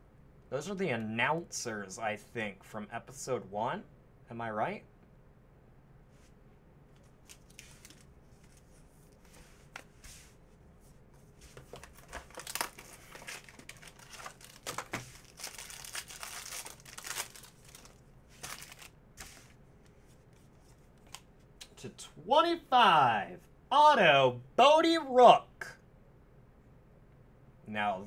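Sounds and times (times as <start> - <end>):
card pack crinkling: 7.1 - 8.1, 11.7 - 19.4.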